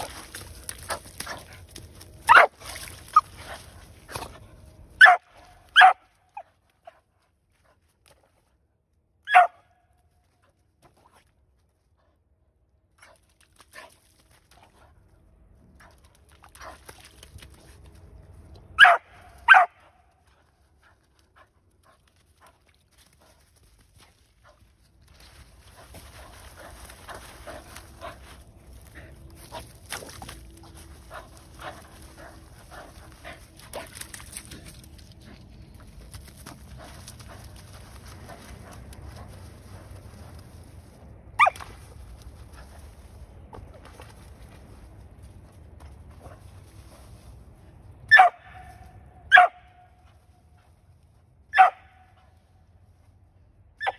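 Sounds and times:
dog digging in wet mud: 0.0s - 5.7s, 10.3s - 12.0s, 12.8s - 19.4s, 20.2s - 47.8s
mud splashing: 0.0s - 6.9s, 13.0s - 45.4s
dog barking: 2.3s - 2.5s, 5.0s - 6.0s, 9.3s - 9.7s, 18.8s - 20.0s, 48.1s - 48.7s, 49.3s - 49.8s, 51.5s - 52.1s.

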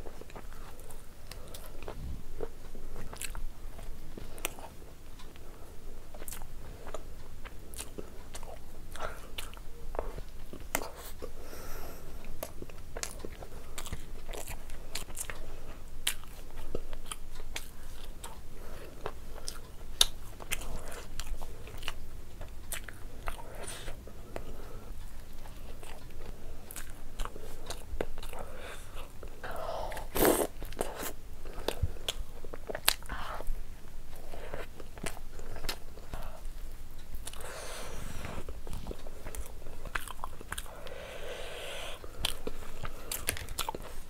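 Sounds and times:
person biting and chewing: 25.0s - 33.5s, 37.2s - 44.0s.

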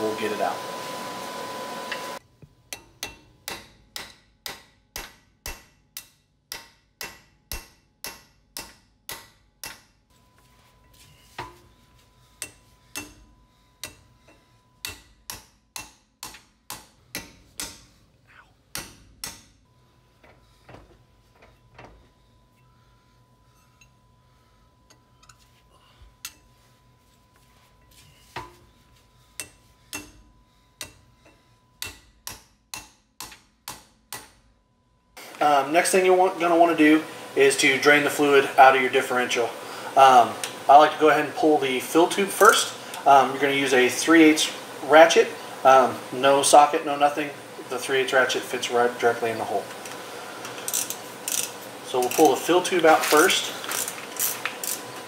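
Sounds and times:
hammer tapping metal punch: 2.4s - 10.0s, 11.4s - 18.0s, 18.7s - 19.6s, 27.9s - 34.5s.

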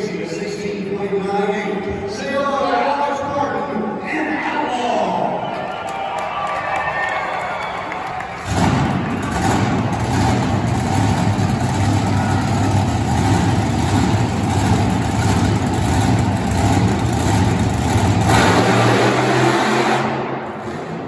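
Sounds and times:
truck engine running loud: 8.3s - 21.0s.

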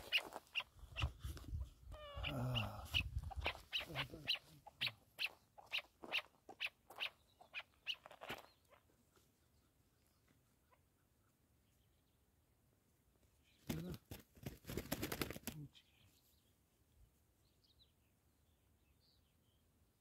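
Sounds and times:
partridge clucking calls: 0.0s - 1.2s, 2.0s - 9.0s.

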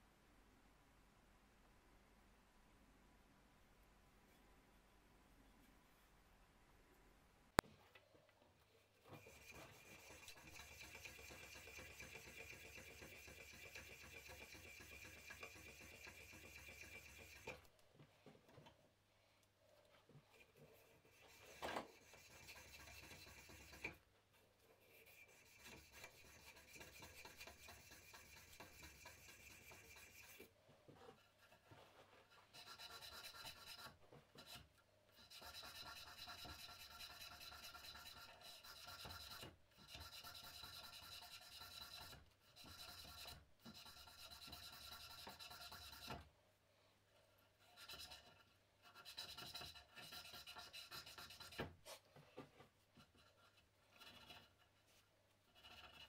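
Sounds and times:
sandpaper rubbing wood: 9.2s - 17.5s.

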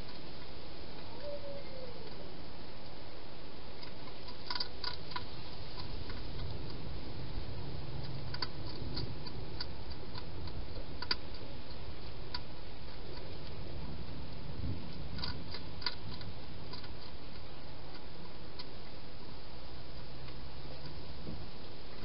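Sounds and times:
low background noise: 0.0s - 22.0s
hedgehog eating clicks and crunches: 3.7s - 21.0s.

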